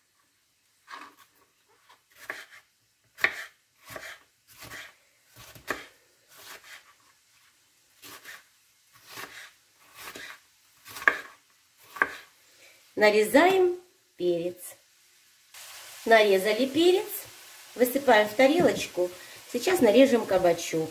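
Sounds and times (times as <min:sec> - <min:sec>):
knife chopping on cutting board: 0:02.2 - 0:02.6, 0:03.2 - 0:06.8, 0:09.0 - 0:12.3.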